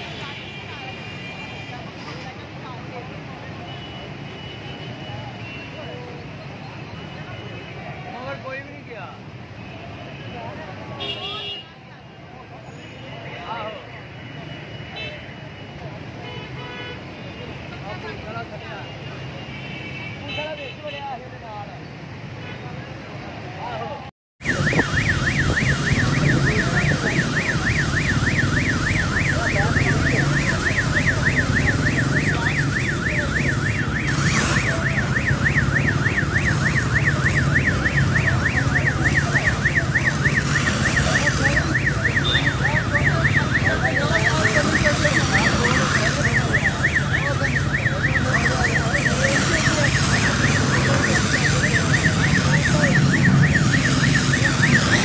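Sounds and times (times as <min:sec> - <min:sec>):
rushing noise: 0:24.4 - 0:55.0
siren warbling: 0:24.4 - 0:55.0.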